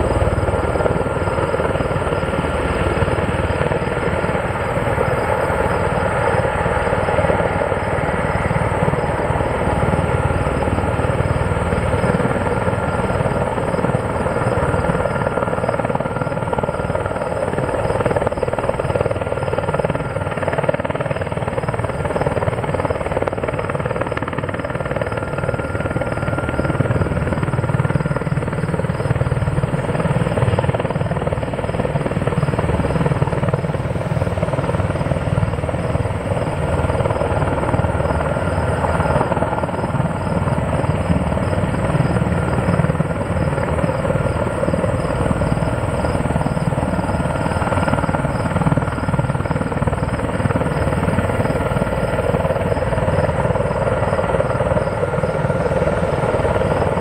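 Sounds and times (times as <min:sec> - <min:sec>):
turbine whine: 0:00.0 - 0:22.0
helicopter rotor beat: 0:00.0 - 0:57.0.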